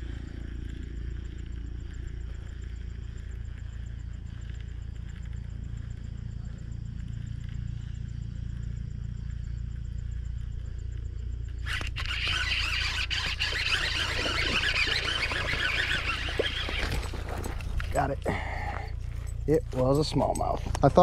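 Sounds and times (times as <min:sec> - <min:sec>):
low steady rumble: 0:00.0 - 0:12.9, 0:14.4 - 0:21.0
fishing reel rattling whir: 0:11.4 - 0:18.4.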